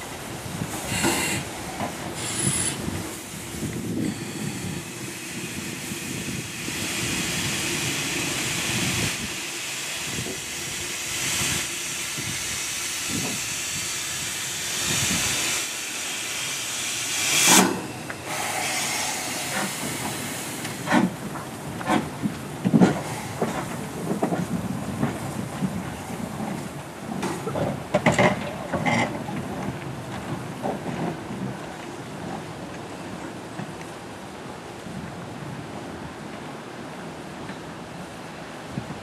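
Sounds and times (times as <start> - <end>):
steam locomotive hissing: 0.0 - 27.5
loud burst of steam: 0.6 - 21.2, 22.9 - 23.9.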